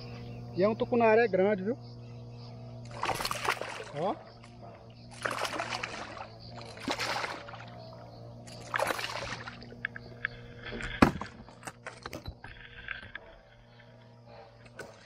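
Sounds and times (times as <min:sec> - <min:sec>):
fish thrashing and splashing: 0:02.8 - 0:04.0, 0:05.1 - 0:13.1.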